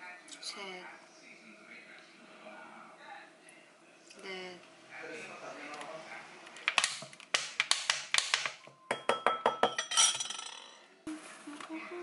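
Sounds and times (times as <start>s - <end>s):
metal spoon clinking on ceramic bowl: 8.9s - 10.7s.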